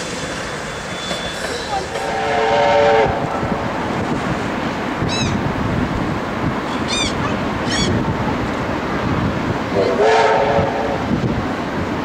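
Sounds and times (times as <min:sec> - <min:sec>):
wind: 0:00.0 - 0:12.0
multi-note whistle tone: 0:00.6 - 0:01.6
short high arching calls: 0:05.1 - 0:05.4, 0:06.6 - 0:08.0.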